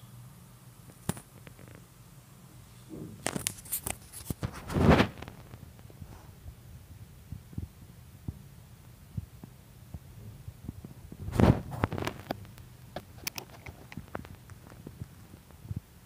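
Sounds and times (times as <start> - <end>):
low steady hum: 0.0 - 16.0
loud bump: 2.9 - 3.2
handling clicks and knocks: 12.9 - 14.6.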